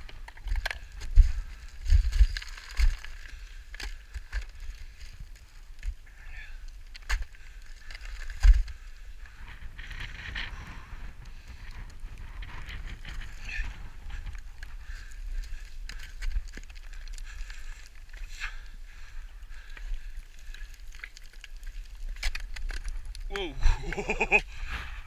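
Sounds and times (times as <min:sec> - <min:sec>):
footsteps crunching on scree: 0:00.0 - 0:05.6.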